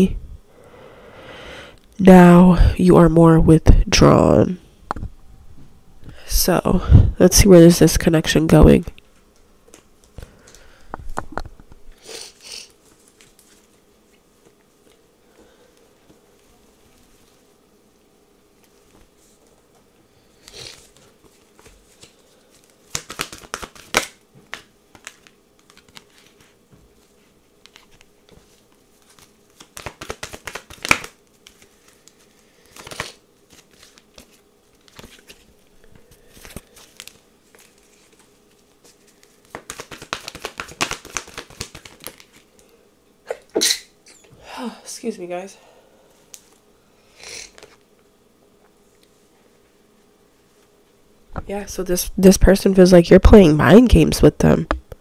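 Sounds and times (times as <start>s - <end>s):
cards being shuffled: 12.2s - 15.0s, 20.4s - 42.7s.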